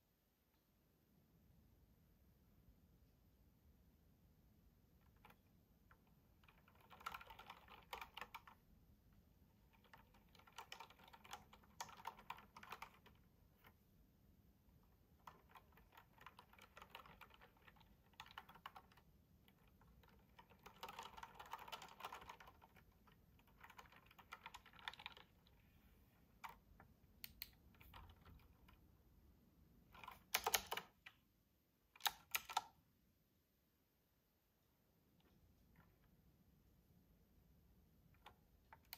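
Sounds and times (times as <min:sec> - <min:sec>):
clicky mechanical keyboard typing: 0:05.0 - 0:08.6, 0:09.5 - 0:13.8, 0:14.8 - 0:25.6, 0:26.4 - 0:28.9, 0:29.9 - 0:31.2, 0:31.9 - 0:32.8, 0:38.2 - 0:38.9.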